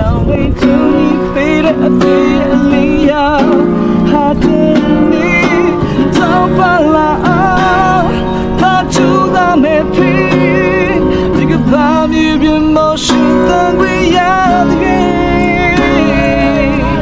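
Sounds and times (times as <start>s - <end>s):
acoustic guitar strumming: 0.0s - 17.0s
person singing: 0.0s - 17.0s.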